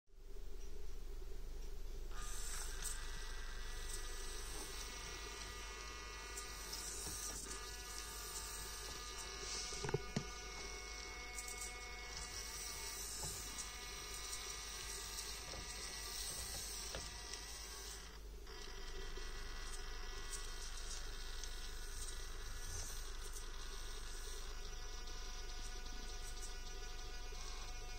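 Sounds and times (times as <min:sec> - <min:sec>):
small motor whining: 0:02.1 - 0:27.9.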